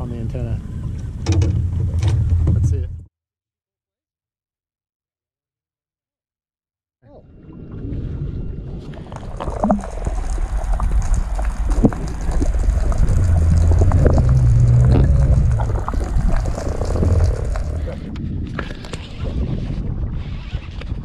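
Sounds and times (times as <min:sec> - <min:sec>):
muffled underwater water rushing: 0:07.3 - 0:18.4
low rumble: 0:07.6 - 0:18.4
clicks and pops: 0:09.1 - 0:19.0.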